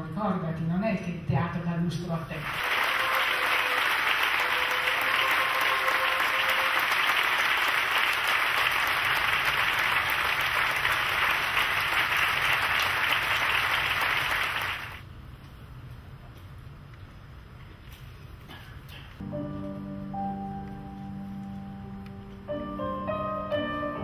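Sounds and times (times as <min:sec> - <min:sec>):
audience applauding: 0:02.4 - 0:15.0.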